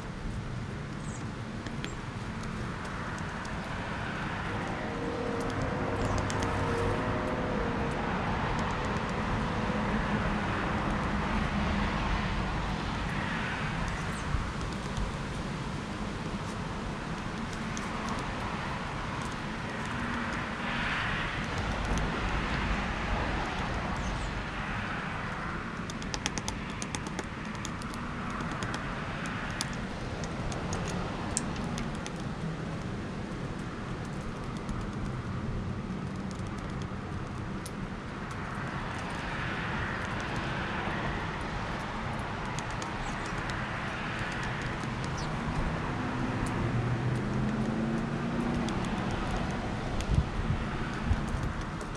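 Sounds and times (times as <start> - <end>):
road traffic hum: 0.0 - 51.9
woodpecker tapping on wire feeder: 25.8 - 32.3.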